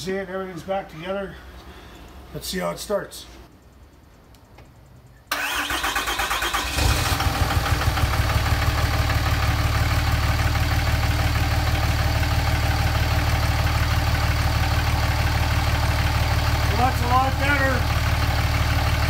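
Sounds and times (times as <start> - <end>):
diesel engine starting and idling: 5.3 - 19.0.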